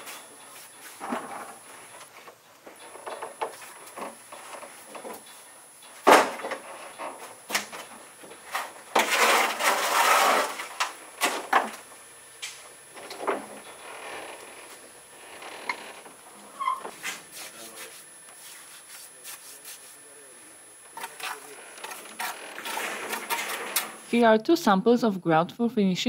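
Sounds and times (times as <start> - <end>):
scraping in mortar: 9.0 - 10.8, 16.9 - 20.0, 20.9 - 24.1.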